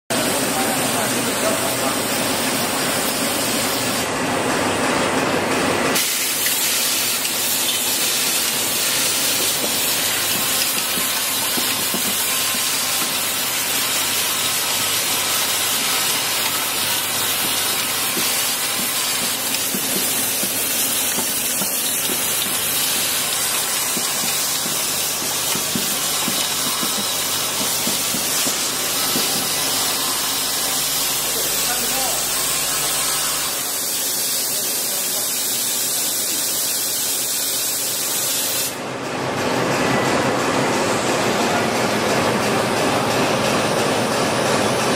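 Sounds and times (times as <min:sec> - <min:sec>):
machine hissing rattle: 0:05.9 - 0:38.8.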